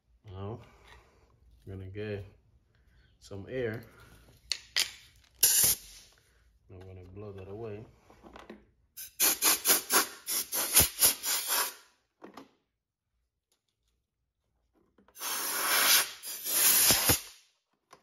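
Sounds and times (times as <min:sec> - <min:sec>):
compressed air blow gun blasts: 0:05.4 - 0:06.1, 0:09.0 - 0:11.8, 0:15.2 - 0:17.4.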